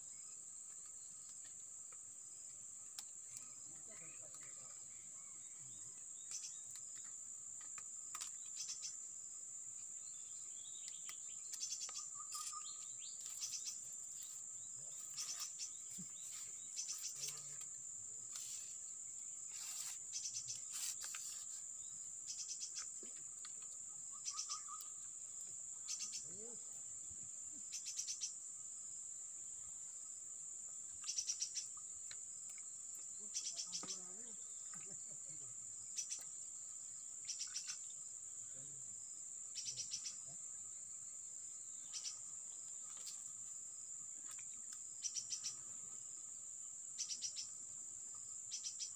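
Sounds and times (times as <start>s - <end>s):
insects droning: 0.0s - 48.9s
faint bird calls: 10.8s - 13.8s, 24.1s - 25.1s.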